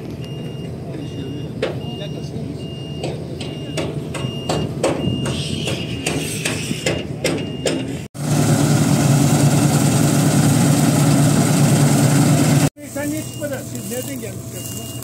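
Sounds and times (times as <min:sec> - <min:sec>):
farm machinery engine: 0:08.2 - 0:15.0
steady engine drone: 0:08.2 - 0:15.0
short high beeps: 0:13.2 - 0:15.0.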